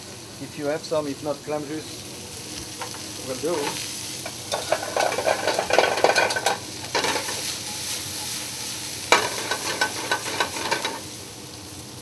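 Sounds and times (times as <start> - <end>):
fish sizzling in a skillet: 0.0 - 12.0
metal tongs clicking on pans: 3.6 - 7.5, 9.1 - 11.0.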